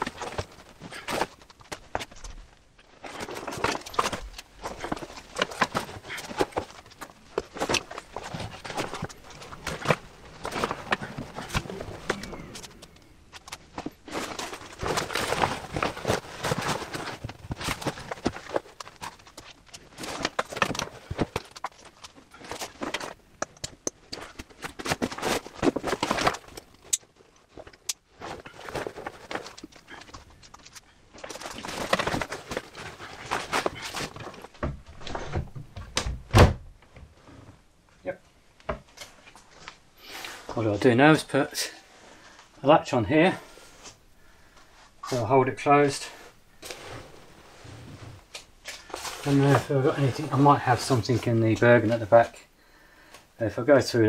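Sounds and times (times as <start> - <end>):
gear knocks and clicks: 0.0 - 37.5
rustling: 0.0 - 54.0.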